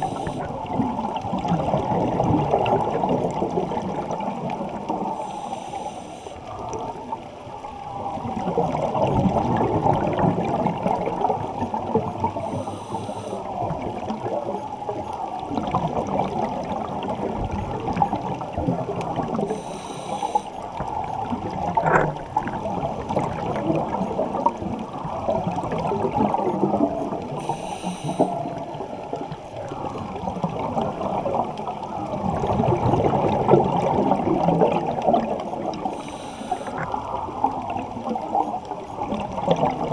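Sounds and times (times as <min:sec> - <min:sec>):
faint hisses: 0:00.0 - 0:00.5, 0:05.0 - 0:06.5, 0:12.4 - 0:13.7, 0:19.5 - 0:20.7, 0:27.3 - 0:28.6, 0:35.8 - 0:37.4
muffled underwater rush and bubbling: 0:00.0 - 0:39.9.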